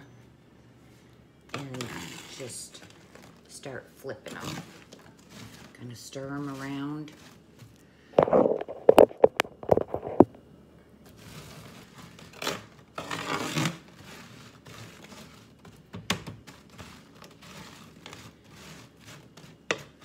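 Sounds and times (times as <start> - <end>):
metal spatula scraping sheet pan: 1.5 - 2.8, 4.3 - 7.4, 11.1 - 15.8, 16.4 - 20.0.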